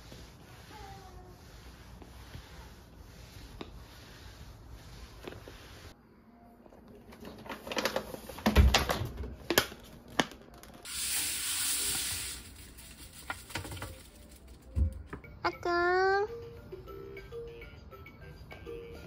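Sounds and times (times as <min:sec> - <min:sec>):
powder pouring hiss: 0:10.8 - 0:14.4.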